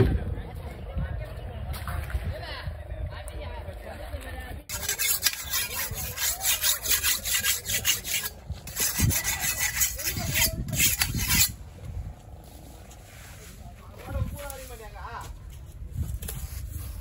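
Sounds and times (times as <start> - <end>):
knife scraping on sharpening stone: 4.7 - 11.6.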